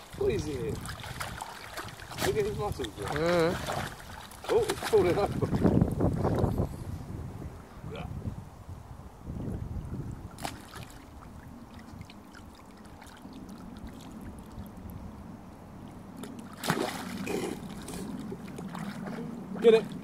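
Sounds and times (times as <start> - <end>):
dog splashing in water: 0.7 - 6.4, 10.3 - 14.3, 16.2 - 20.0.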